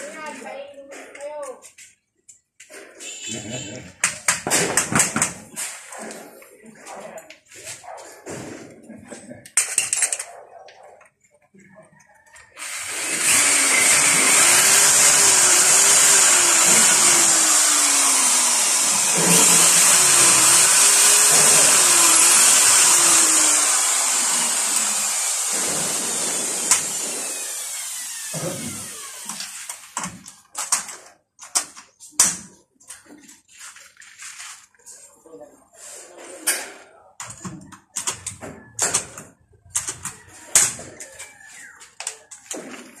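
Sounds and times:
electric drill boring into concrete: 0:12.4 - 0:30.1.

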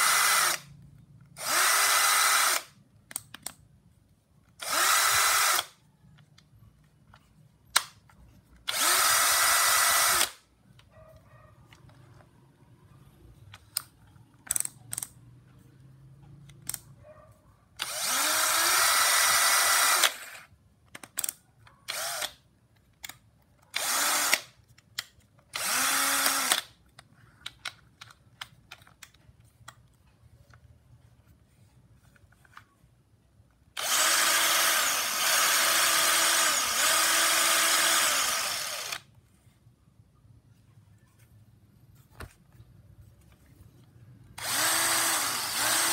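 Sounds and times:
cordless drill motor spinning: 0:00.0 - 0:00.7, 0:01.4 - 0:02.7, 0:04.6 - 0:05.8, 0:08.6 - 0:10.4, 0:17.8 - 0:20.5, 0:21.9 - 0:22.4, 0:23.7 - 0:24.5, 0:25.5 - 0:26.7, 0:33.8 - 0:39.1, 0:44.4 - 0:45.9.

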